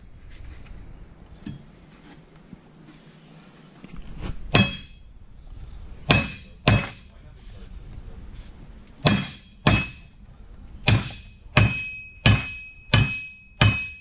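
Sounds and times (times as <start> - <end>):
hammer striking metal: 4.5 - 5.3, 6.1 - 7.3, 9.0 - 14.0
steel axle ringing: 4.5 - 7.3, 9.0 - 14.0.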